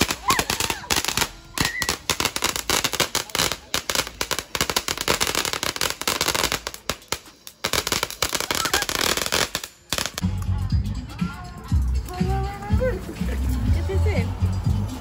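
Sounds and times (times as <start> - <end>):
fireworks crackling and popping: 0.0 - 10.4.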